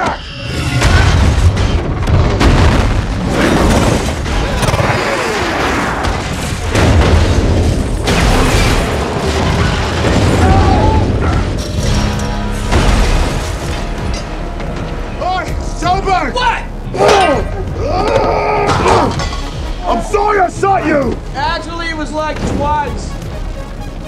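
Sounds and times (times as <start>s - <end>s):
metal crashing and smashing: 6.0s - 14.4s.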